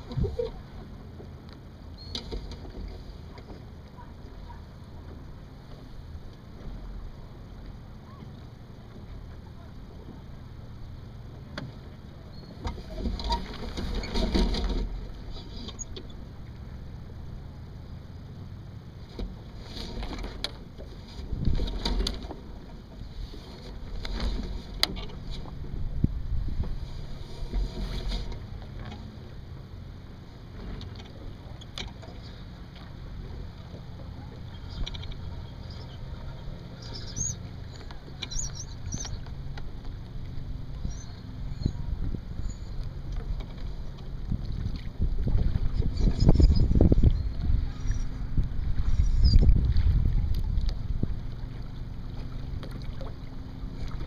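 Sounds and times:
wind rumbling on microphone: 0.0s - 0.8s, 19.0s - 28.7s, 33.1s - 54.0s
water splashing along hull: 0.0s - 54.0s
short high squeaks: 36.8s - 39.2s, 42.4s - 42.8s, 45.7s - 48.2s.

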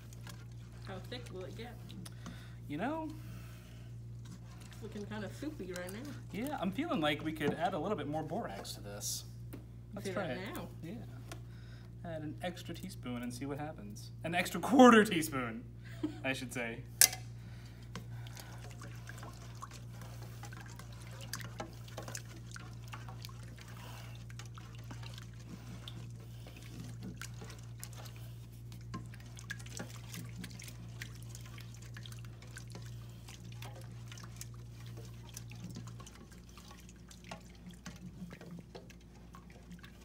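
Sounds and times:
slime sloshing and dripping: 0.0s - 8.8s, 17.0s - 40.0s.

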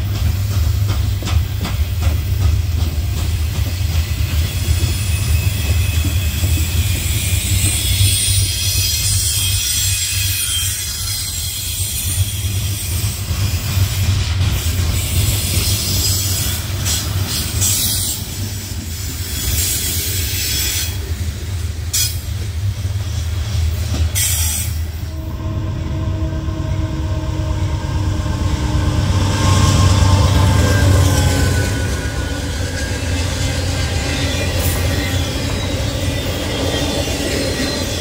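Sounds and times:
diesel locomotive engine whining: 0.0s - 38.0s
train wheels rumbling on rails: 0.0s - 38.0s
wheel squeal: 4.0s - 13.7s, 29.4s - 38.0s.

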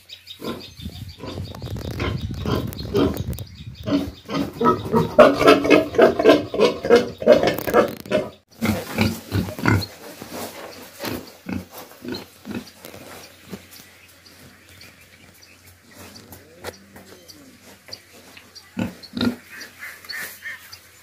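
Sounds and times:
pigs grunting: 3.8s - 10.2s, 11.0s - 12.8s, 16.3s - 19.9s.

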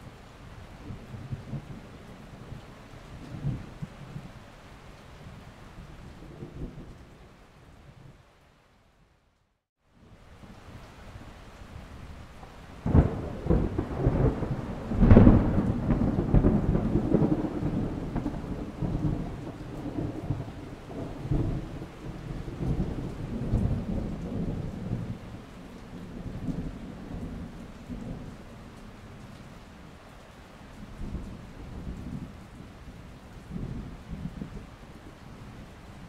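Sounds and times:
thunder crack and rumble: 0.8s - 4.4s, 12.8s - 28.5s.

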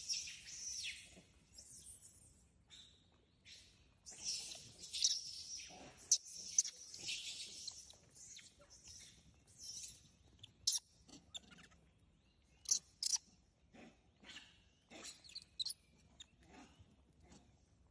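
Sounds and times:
high-pitched chirping calls: 4.1s - 11.8s, 12.6s - 13.2s, 15.1s - 15.8s.

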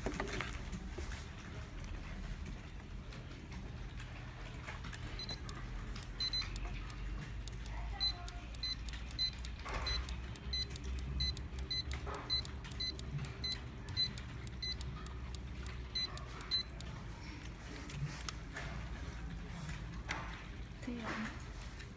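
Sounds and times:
barcode scanner beeps: 5.0s - 17.0s.

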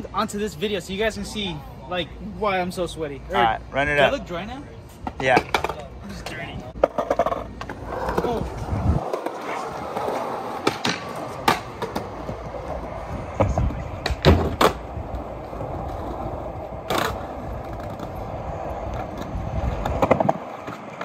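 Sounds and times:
skateboard wheels rolling on concrete: 0.0s - 21.0s
skateboard clacks: 5.0s - 21.0s.

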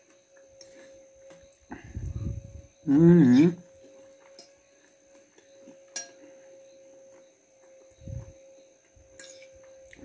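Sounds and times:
faint steady hum: 0.0s - 10.0s
metal fork clinking on bowl: 5.9s - 6.2s, 9.2s - 9.5s.

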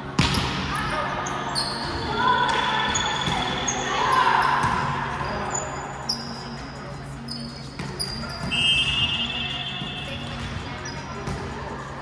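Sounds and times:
sneakers squeaking on hardwood floor: 1.3s - 2.1s, 7.2s - 11.2s.

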